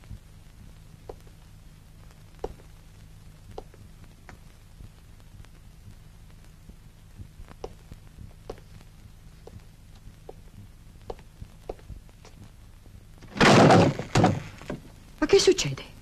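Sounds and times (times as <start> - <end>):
steady low hum: 0.0 - 16.0
footsteps on hard floor: 8.5 - 8.7, 9.4 - 9.7.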